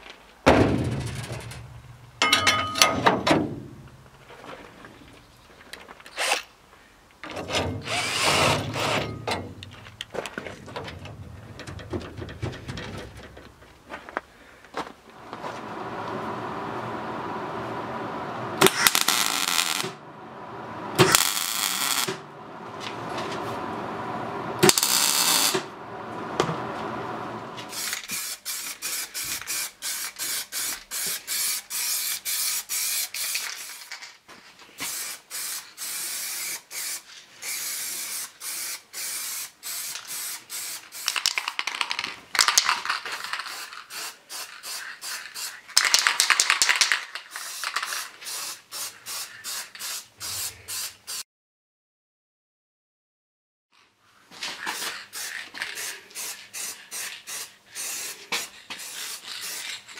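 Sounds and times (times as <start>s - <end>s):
welding arc crackle: 18.6s - 20.0s, 21.0s - 22.2s, 24.6s - 25.7s
spray paint hissing: 27.7s - 34.0s, 34.8s - 41.8s, 42.8s - 51.2s, 54.6s - 59.9s
spray can ball rattling: 27.7s - 34.2s, 34.8s - 51.2s, 54.6s - 59.9s.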